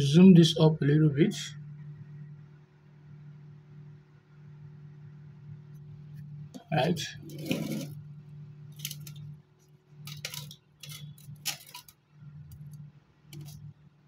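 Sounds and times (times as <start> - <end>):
steady low hum: 0.0 - 14.0
drawing instruments scraping paper: 7.2 - 8.0.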